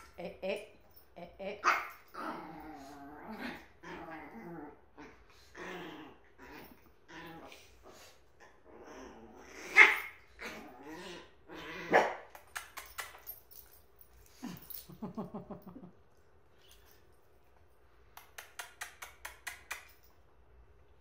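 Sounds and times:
small dogs growling: 1.6s - 12.1s.

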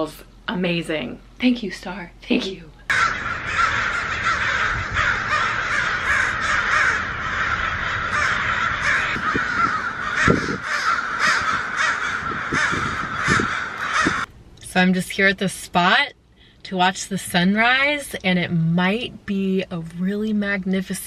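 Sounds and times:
crows cawing: 2.9s - 14.3s.

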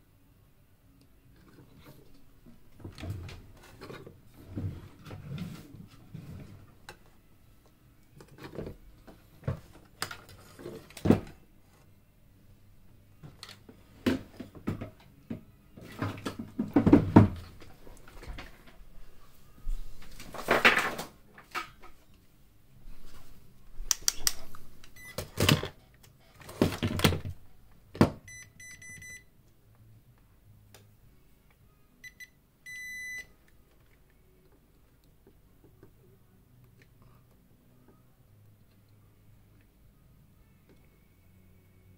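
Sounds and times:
parts clattering and rustling: 20.0s - 22.1s.

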